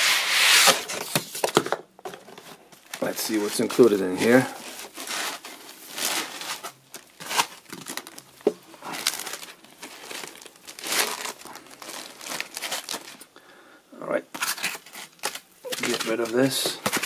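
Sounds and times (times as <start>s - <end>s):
plastic bag crinkling: 2.7s - 13.3s, 14.4s - 17.0s.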